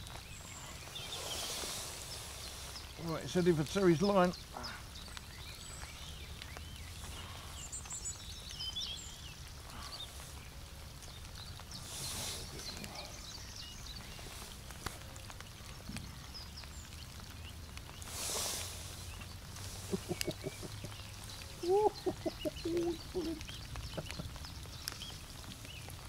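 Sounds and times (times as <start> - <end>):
rain falling on a lake: 0.0 - 26.0
brief hiss: 11.8 - 12.9, 18.1 - 19.1
bird chirps: 16.0 - 25.9.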